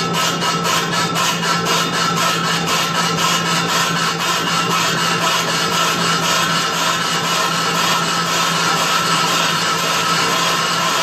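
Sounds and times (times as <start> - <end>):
machine tool humming: 0.0 - 11.0
rhythmic scraping: 0.0 - 11.0.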